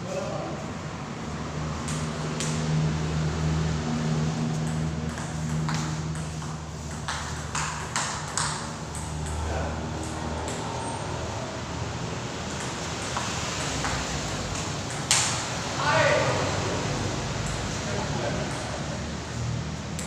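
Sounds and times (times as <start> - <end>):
ping pong ball clicking off paddles: 1.8 - 2.6, 4.5 - 11.0, 12.4 - 15.6, 17.4 - 17.8, 18.4 - 19.0.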